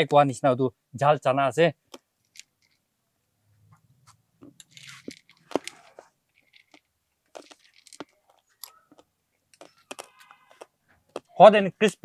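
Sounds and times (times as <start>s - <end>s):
crunching and chewing crispy snack: 4.8s - 6.0s, 6.6s - 11.3s.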